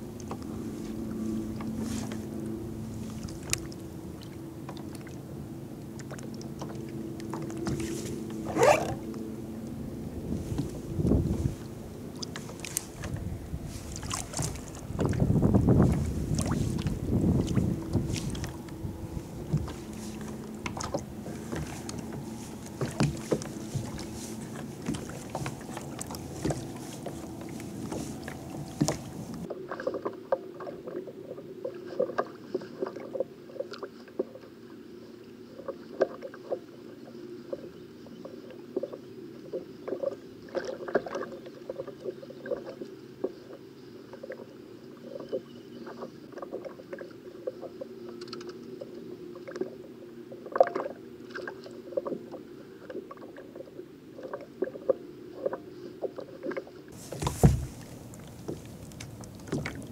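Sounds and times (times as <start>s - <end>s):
water slapping against hull: 0.0s - 31.0s, 54.2s - 59.9s.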